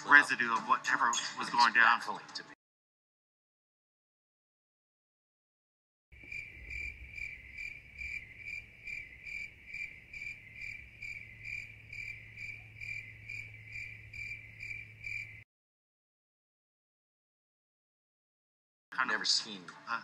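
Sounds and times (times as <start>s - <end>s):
cricket chirping: 6.2s - 15.4s
faint low hum: 6.2s - 15.4s.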